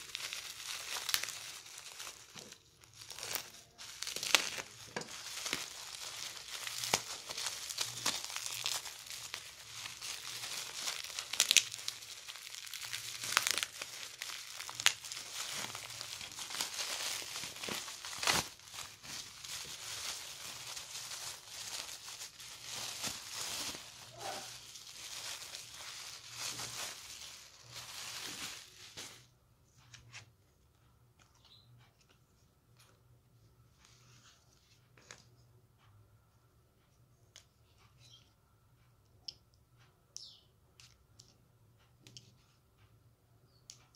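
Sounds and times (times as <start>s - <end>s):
bubble wrap crinkling: 0.0s - 29.3s.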